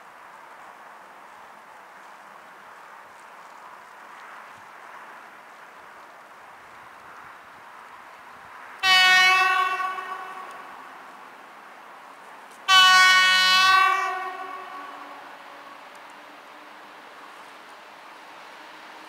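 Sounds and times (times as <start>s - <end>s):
train horn blasts: 8.8s - 10.8s, 12.7s - 16.0s.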